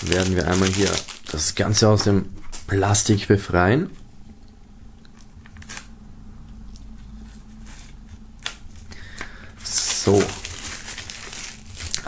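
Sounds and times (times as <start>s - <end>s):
knife scratching plastic wrap: 0.0s - 1.4s, 9.6s - 12.0s.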